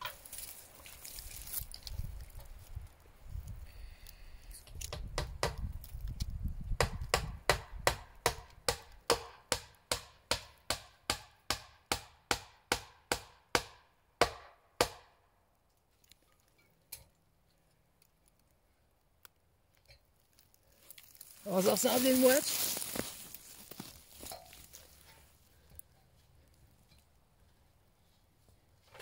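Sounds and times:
hammer driving nails into wood: 6.8s - 15.1s.

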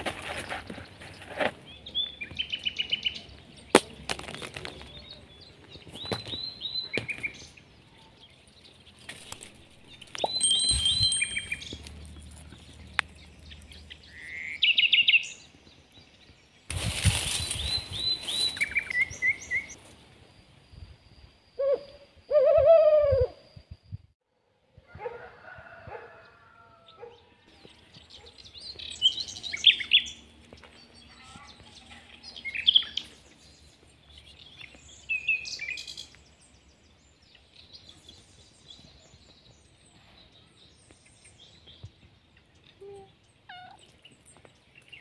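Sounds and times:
small birds chirping: 0.3s - 19.9s, 26.9s - 45.0s
rooster crowing: 24.8s - 27.2s.

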